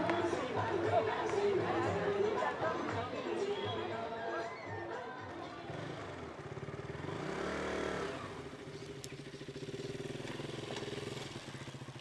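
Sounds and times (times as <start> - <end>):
small engine revving and idling: 4.8 - 12.0.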